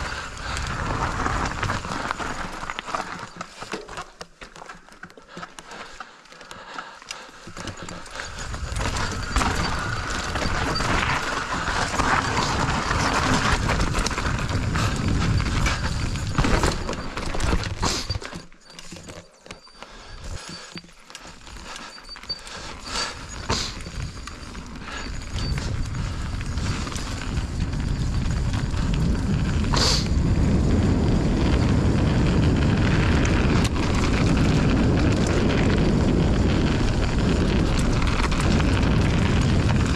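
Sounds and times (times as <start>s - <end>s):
wind rumble on microphone: 0.0s - 2.6s, 8.2s - 18.2s, 22.8s - 39.9s
bike rattling over bumps: 0.0s - 39.9s
bike tyres rolling over dirt: 0.0s - 39.9s.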